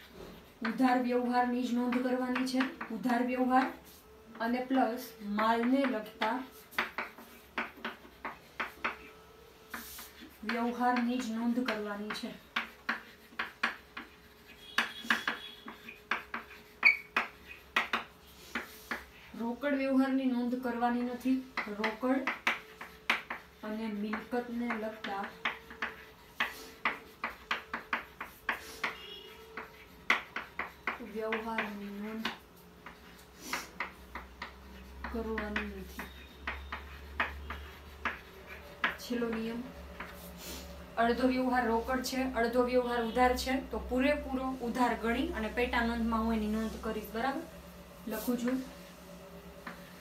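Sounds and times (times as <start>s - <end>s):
chalk tapping on blackboard: 0.0s - 40.4s, 48.0s - 50.0s
chalk squeak: 12.4s - 19.2s, 21.8s - 32.4s, 33.0s - 39.4s.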